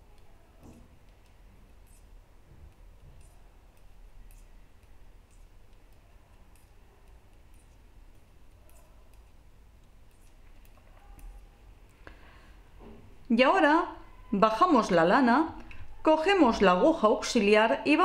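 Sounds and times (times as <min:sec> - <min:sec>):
knitting needles clicking: 0:00.0 - 0:12.1.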